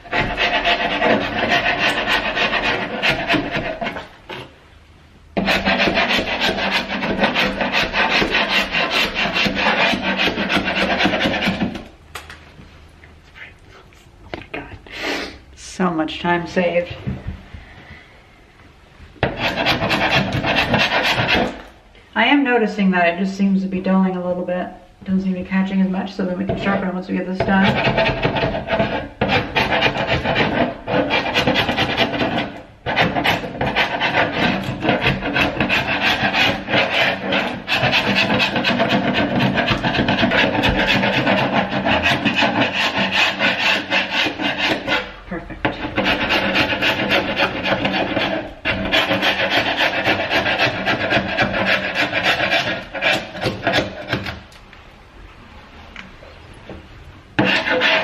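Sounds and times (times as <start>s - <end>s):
chisel scraping paint off wood: 0.0s - 4.5s, 5.4s - 11.9s, 19.2s - 21.7s, 26.5s - 54.5s, 57.4s - 58.0s.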